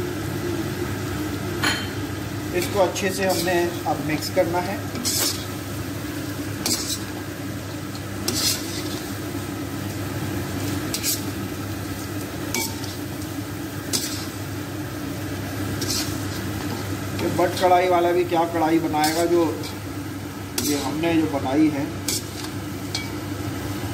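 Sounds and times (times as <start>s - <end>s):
food sizzling in oil: 0.0s - 23.9s
utensil scraping pan: 4.9s - 5.5s, 6.6s - 7.2s, 8.2s - 9.2s, 10.6s - 11.4s, 13.9s - 14.4s, 15.8s - 16.9s, 20.6s - 21.0s, 22.0s - 23.1s.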